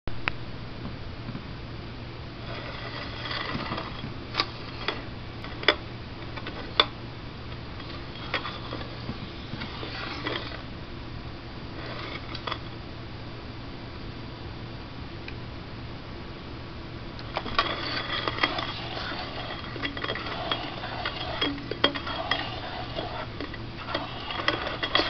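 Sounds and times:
scraping on turntable platter: 2.4s - 6.9s, 7.7s - 10.7s, 11.7s - 12.7s, 17.2s - 25.0s.

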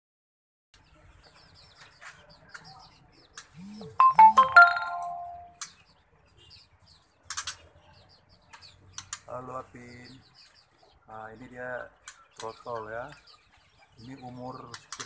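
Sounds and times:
birds chirping: 0.8s - 15.0s
ringing chime-like melodic sound: 4.0s - 5.5s.

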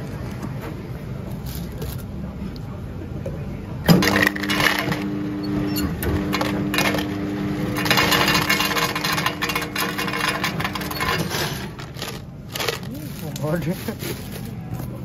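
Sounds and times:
ice dispenser humming: 3.8s - 15.0s
ice cubes clattering into cup: 3.9s - 5.1s, 6.3s - 7.1s, 7.7s - 14.5s.

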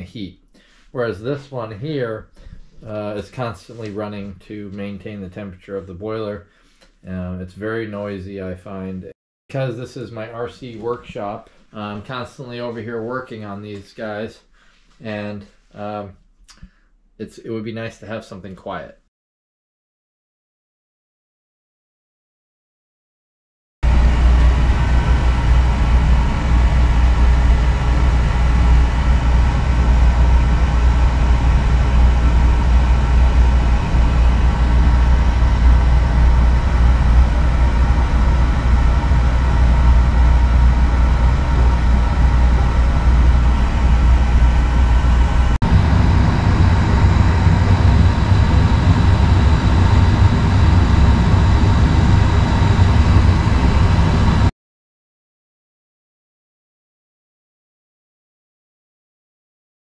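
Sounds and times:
oil boiler humming: 23.8s - 54.5s.

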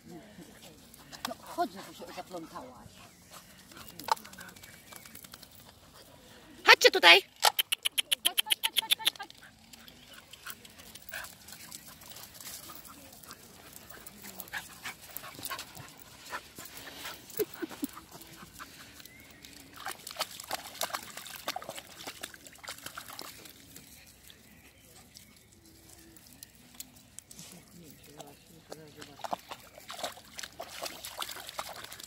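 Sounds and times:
dogs panting: 0.1s - 6.6s, 7.7s - 26.4s.

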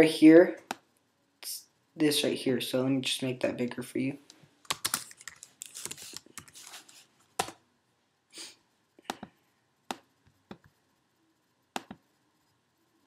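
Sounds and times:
sharp computer clicks: 4.7s - 5.5s, 11.8s - 12.0s.

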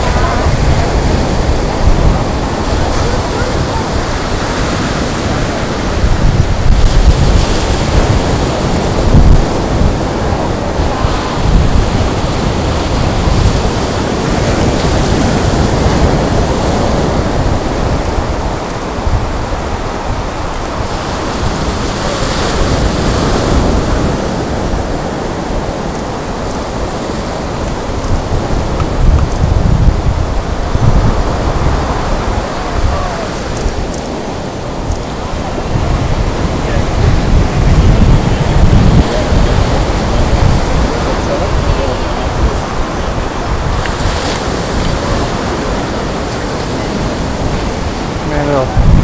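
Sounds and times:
surf breaking on beach: 0.0s - 49.0s
wind buffeting microphone: 0.0s - 49.0s.

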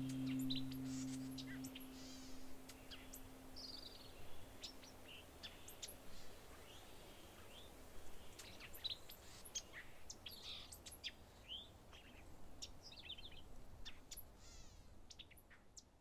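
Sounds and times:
birds chirping and calling: 0.0s - 2.2s.

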